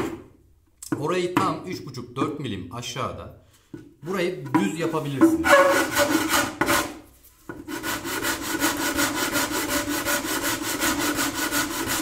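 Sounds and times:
sandpaper rubbing on wood: 7.7 - 12.0.

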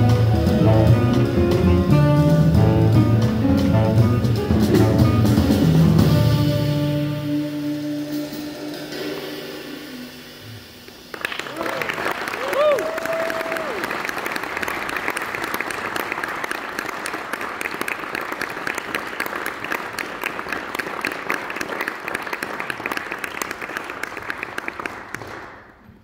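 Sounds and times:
audience applauding: 10.9 - 26.0.

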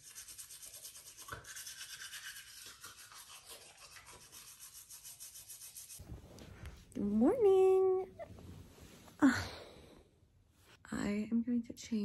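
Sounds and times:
toothbrush scrubbing teeth: 0.0 - 6.0.

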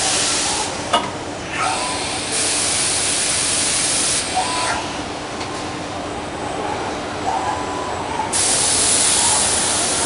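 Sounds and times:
cnc machine hissing rush: 1.6 - 4.8.

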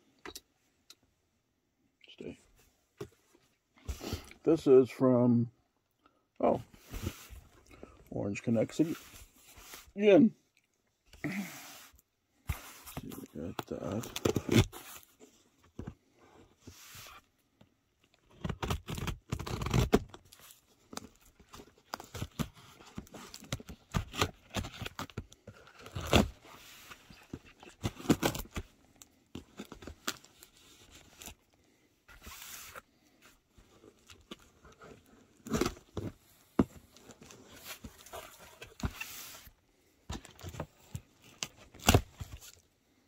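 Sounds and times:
packing tape tearing: 18.3 - 20.2.

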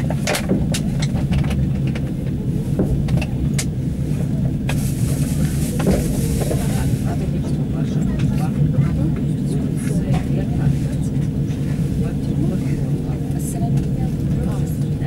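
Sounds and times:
train rumbling on track: 0.0 - 15.0.

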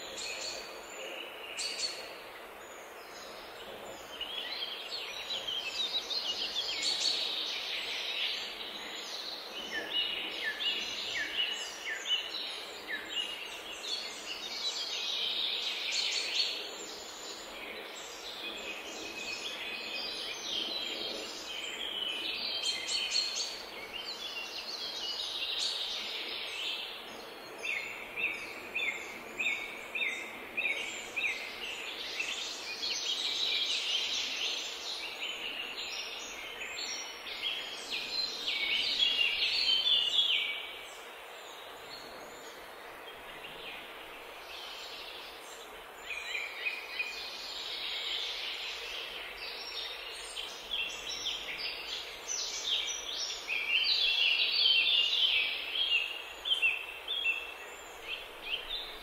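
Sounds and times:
background hiss: 0.0 - 59.0
songbirds chirping and trilling: 0.0 - 59.0.

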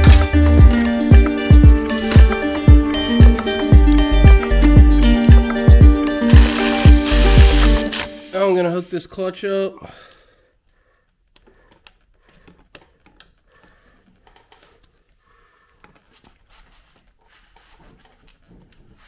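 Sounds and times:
hand tools clicking and tapping: 0.0 - 8.1.

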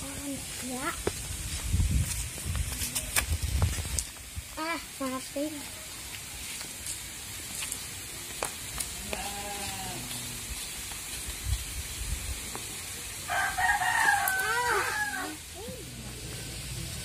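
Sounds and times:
rooster crowing: 13.3 - 15.4.

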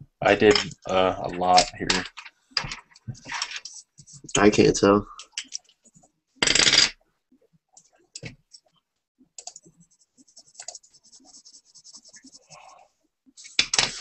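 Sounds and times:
pencil scratching on paper: 9.6 - 12.9.

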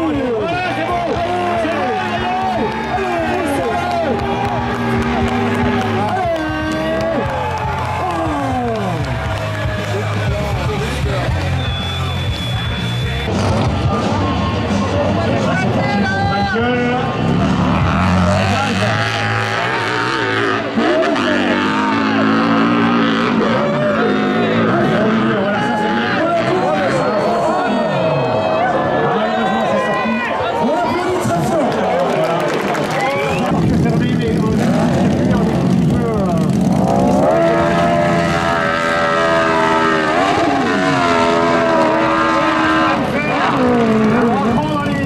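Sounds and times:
dirt bike engine revving hard: 0.8 - 14.2, 17.0 - 27.6, 33.1 - 45.0.

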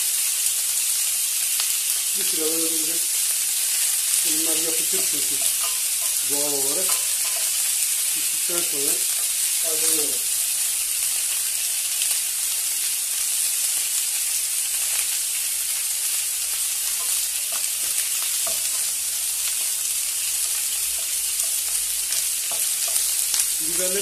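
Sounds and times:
vegetables sizzling in hot oil: 0.0 - 24.0
wooden spoon stirring: 4.4 - 10.6.

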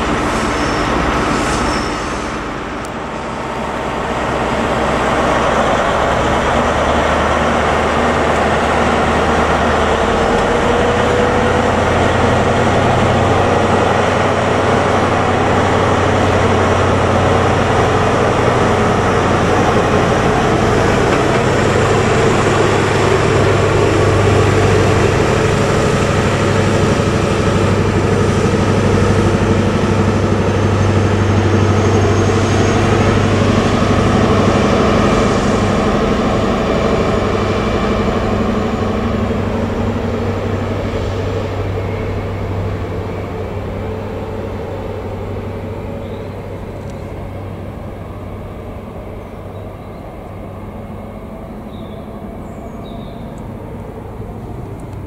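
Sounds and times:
train diesel engine drone: 0.0 - 55.0.

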